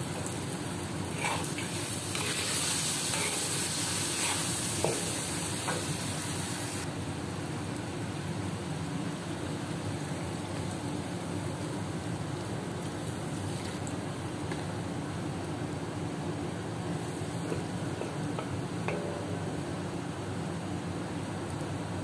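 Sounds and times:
chicken sizzling in a wok: 0.0 - 22.0
metal spatula stirring: 1.1 - 5.8.

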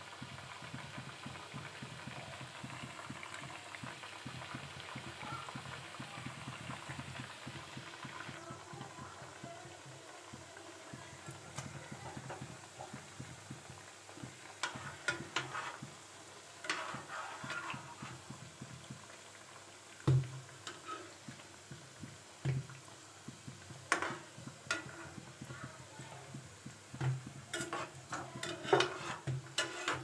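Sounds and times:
dough deep-frying in oil: 0.0 - 30.0
metal spoon scraping pan: 14.6 - 15.8, 16.6 - 17.9, 27.5 - 30.0.

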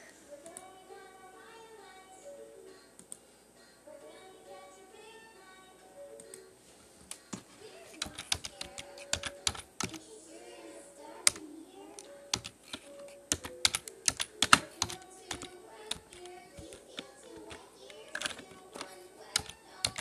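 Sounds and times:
fingers typing and tapping: 8.0 - 10.0, 11.2 - 11.4, 12.3 - 20.0.

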